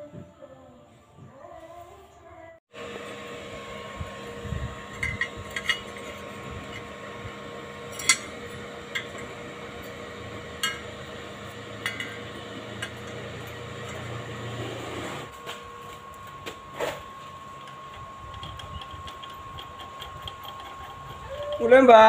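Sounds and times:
steady background hum: 0:00.0 - 0:22.0
steel brackets clinking: 0:07.9 - 0:10.0, 0:11.8 - 0:14.1.

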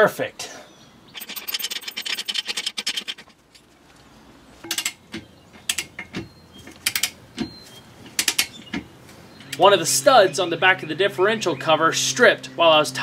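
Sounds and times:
ratchet wrench clicking: 0:01.2 - 0:03.3.

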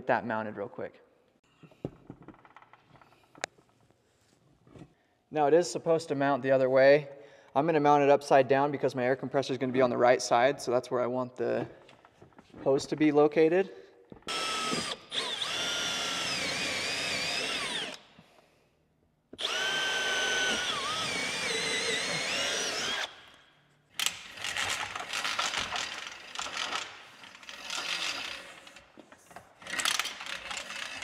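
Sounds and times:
cordless drill driving screws: 0:14.3 - 0:18.1, 0:19.4 - 0:23.4, 0:24.0 - 0:28.8
hose reel clattering and clicking: 0:24.0 - 0:31.0.

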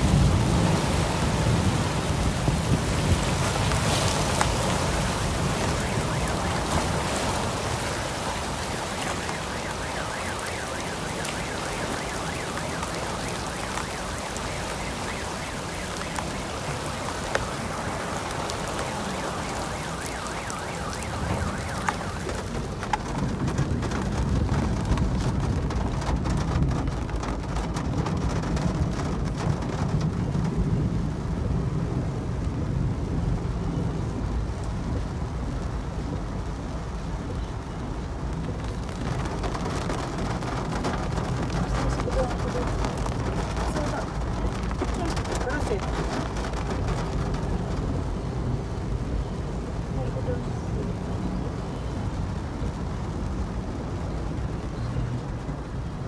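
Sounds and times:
heavy rain on a car: 0:00.0 - 0:56.0
deep rumble: 0:21.1 - 0:56.0.

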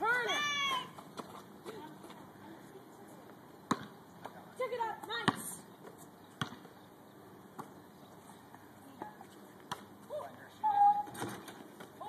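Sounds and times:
basketball bouncing on asphalt: 0:03.6 - 0:06.8, 0:07.5 - 0:07.8.

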